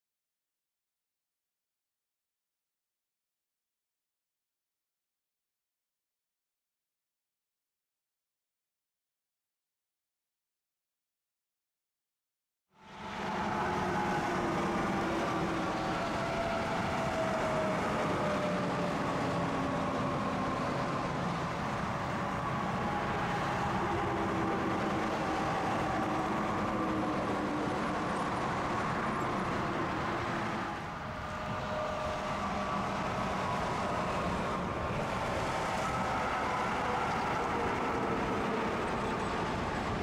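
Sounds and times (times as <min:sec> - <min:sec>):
highway traffic passing: 0:12.8 - 0:40.0.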